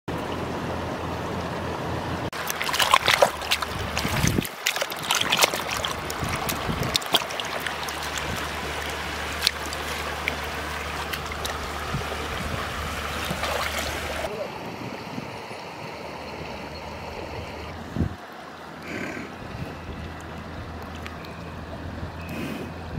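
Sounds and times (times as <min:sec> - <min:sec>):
hands squelching in wet mud: 0:02.4 - 0:14.3
steady hiss of water: 0:02.4 - 0:14.3.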